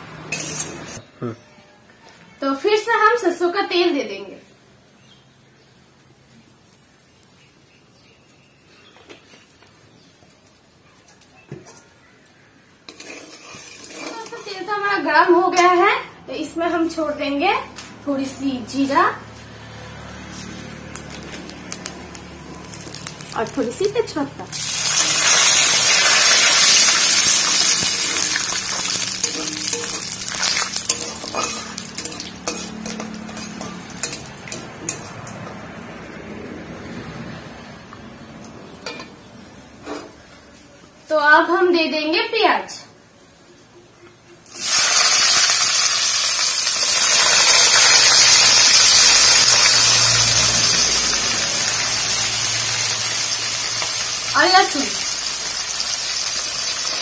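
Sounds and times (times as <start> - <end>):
spices sizzling in hot oil: 0.2 - 1.0, 12.2 - 15.5, 20.3 - 35.5, 44.5 - 57.0
cooking utensils knocking: 26.7 - 35.6.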